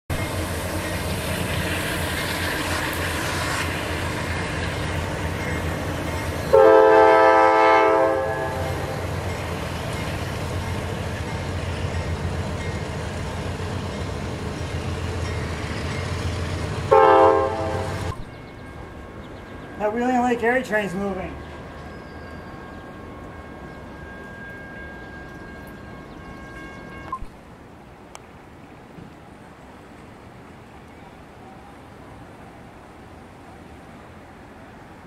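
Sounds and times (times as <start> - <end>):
diesel locomotives rumbling: 0.1 - 35.0
train air horn blast: 6.5 - 9.1, 16.9 - 18.2.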